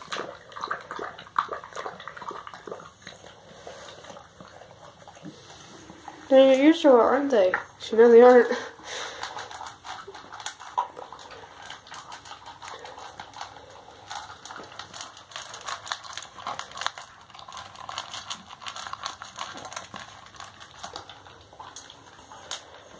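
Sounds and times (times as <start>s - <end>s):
dog crunching kibble in metal bowl: 0.0s - 22.9s.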